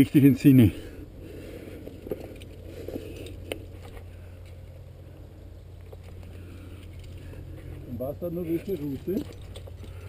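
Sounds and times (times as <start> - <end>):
steady low rumble: 0.0 - 10.0
hands and feet scraping rock: 1.3 - 4.6
climbing gear clinking: 5.8 - 10.0.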